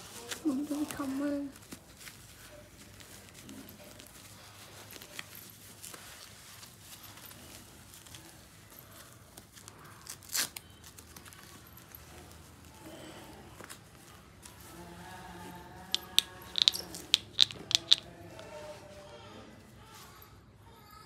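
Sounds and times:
diaper rustling and crinkling: 0.0s - 12.6s.

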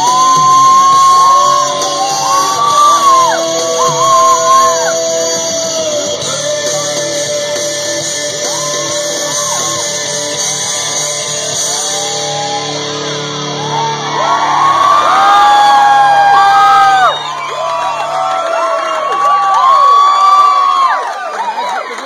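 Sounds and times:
music with singing voice: 0.0s - 17.1s.

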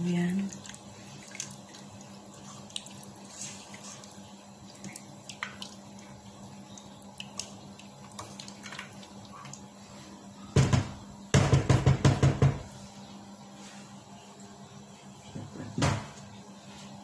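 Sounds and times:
liquid sloshing and bubbling: 0.3s - 10.2s.

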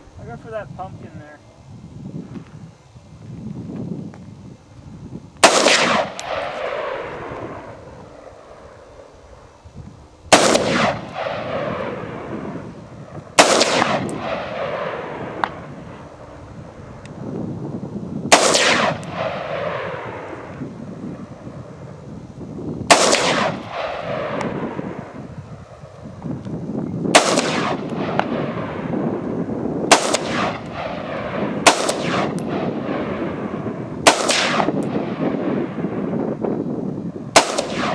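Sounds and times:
rifle shots echoing: 5.4s - 9.1s, 10.3s - 16.2s, 18.3s - 20.6s, 22.9s - 25.9s, 27.1s - 36.2s, 37.3s - 37.9s.

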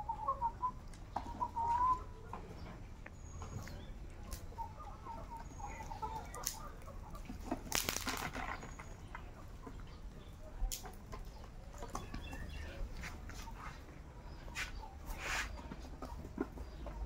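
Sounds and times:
chickens clucking: 0.0s - 17.0s
wing flapping: 7.6s - 8.9s.

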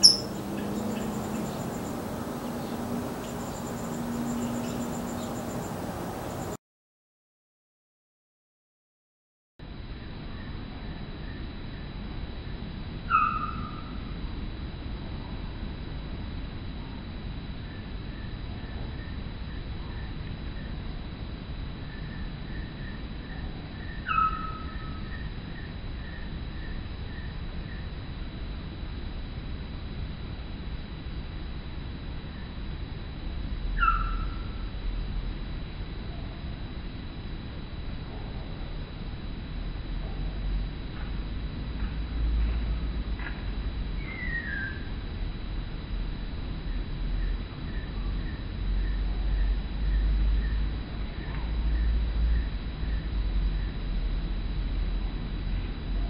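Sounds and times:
songbird whistling short notes: 0.0s - 0.4s
bird call sliding down in pitch: 0.0s - 1.9s
bird chip call: 0.0s - 6.6s, 13.1s - 13.9s, 24.1s - 25.0s, 33.8s - 34.4s
low hum: 0.0s - 6.6s
pulsing insect-like trill: 0.0s - 6.6s, 9.9s - 56.0s.

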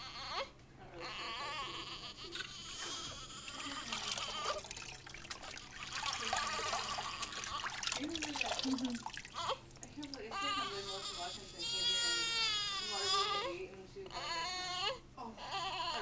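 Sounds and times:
water trickling and splashing: 3.6s - 10.6s.

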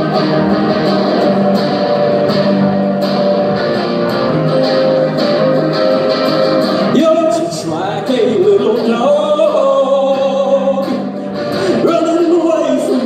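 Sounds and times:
electric guitar strumming: 0.0s - 13.0s
man singing long notes: 6.9s - 13.0s.

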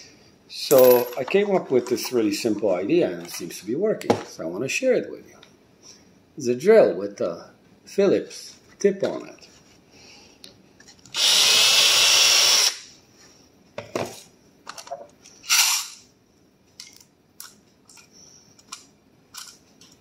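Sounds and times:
cordless drill running: 11.1s - 12.8s.

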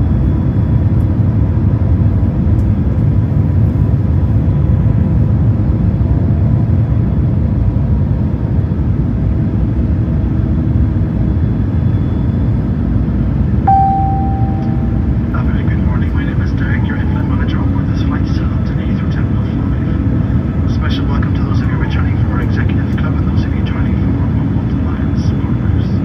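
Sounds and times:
airplane cabin engine rush: 0.0s - 26.0s
faint steady whine: 13.7s - 26.0s.

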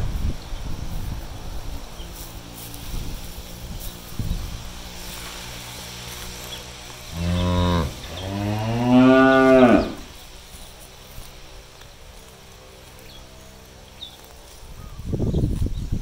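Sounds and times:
cow mooing: 7.1s - 10.1s.

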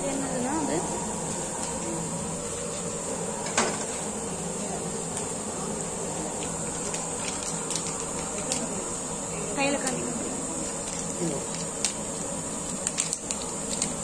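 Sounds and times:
background hiss and hum: 0.0s - 14.0s.

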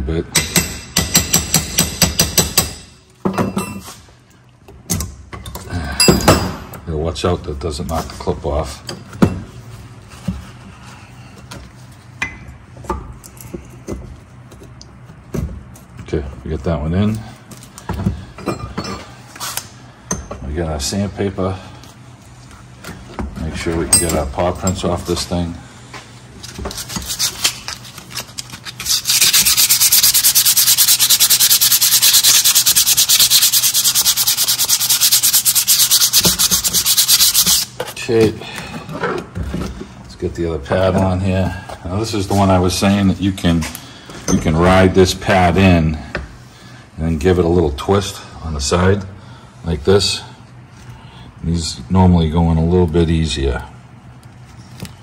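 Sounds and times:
sandpaper rubbing brake pad: 26.7s - 27.8s, 28.6s - 37.8s.

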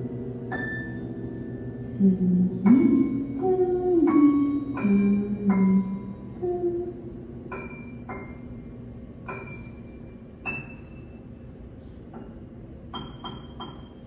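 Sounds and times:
low steady drone: 0.0s - 10.5s.

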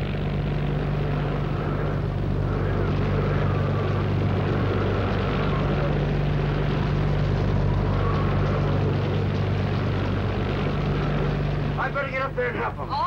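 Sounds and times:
low drone: 0.0s - 13.0s
rushing wind with whistle: 1.6s - 9.6s.

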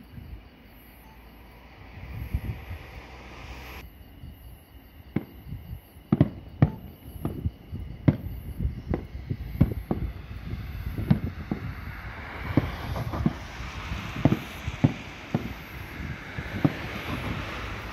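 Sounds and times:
fireworks bangs and cracks: 5.1s - 17.9s.

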